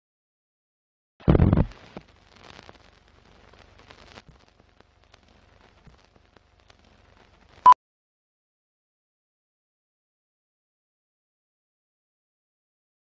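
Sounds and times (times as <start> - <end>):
film crackling and clicks: 1.4 - 7.7.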